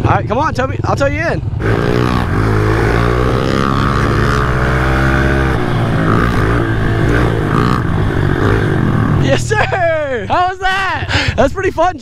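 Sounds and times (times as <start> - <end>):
motorbike engine revving: 1.2 - 10.2.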